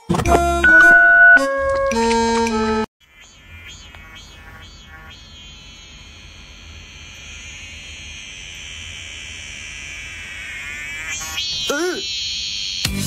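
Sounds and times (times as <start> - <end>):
cicada buzzing: 3.0 - 13.0.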